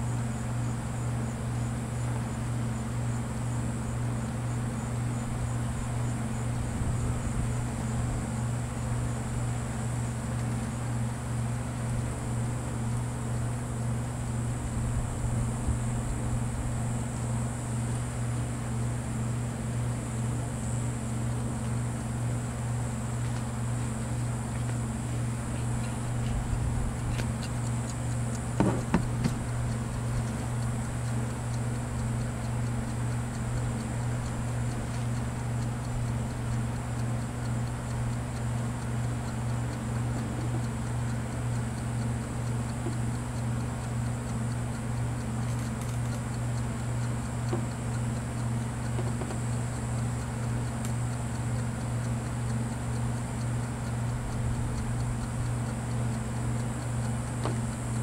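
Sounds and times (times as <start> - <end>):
pulsing low hum: 4.8 - 45.2
sharp clicks: 45.4 - 46.6.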